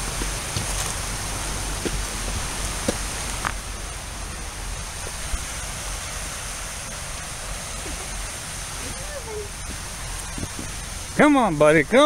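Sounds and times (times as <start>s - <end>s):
footsteps on rocky dirt trail: 0.0s - 3.6s
steady rushing hiss: 0.0s - 12.0s.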